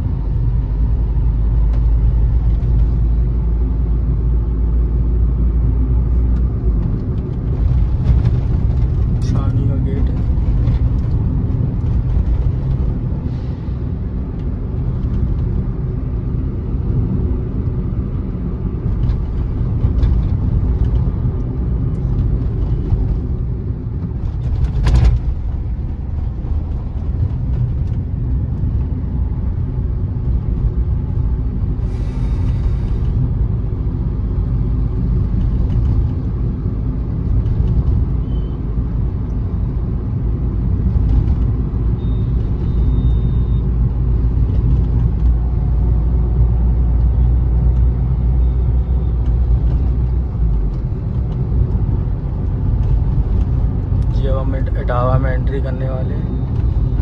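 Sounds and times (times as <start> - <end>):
engine and tyre rumble: 0.0 - 57.0.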